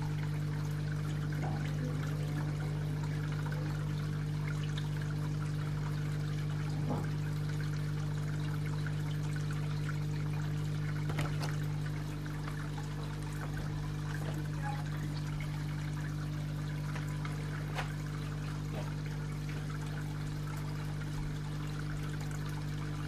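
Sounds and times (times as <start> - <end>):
water trickling into a pond: 0.0 - 23.0.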